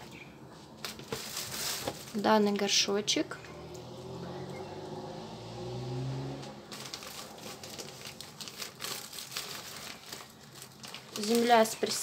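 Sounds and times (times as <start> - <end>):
plastic pot crinkling: 0.7 - 2.8, 6.7 - 12.0.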